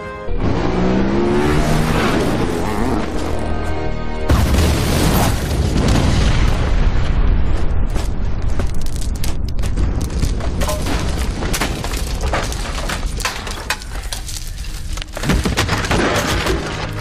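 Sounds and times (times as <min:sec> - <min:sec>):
deep explosion rumble: 0:04.3 - 0:12.3
sharp cracks and clatters: 0:07.9 - 0:17.0.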